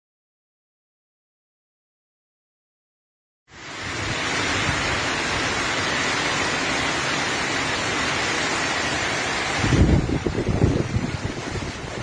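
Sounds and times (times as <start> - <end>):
heavy rain pouring: 3.5 - 12.0.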